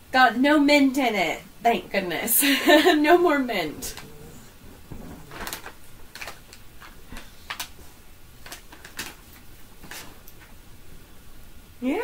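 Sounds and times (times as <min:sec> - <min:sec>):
plastic bag crinkling: 0:04.8 - 0:10.5.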